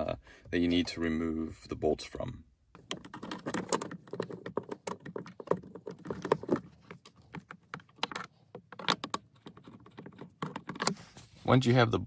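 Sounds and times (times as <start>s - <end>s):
screwdriver clicking and scraping: 2.8s - 11.3s.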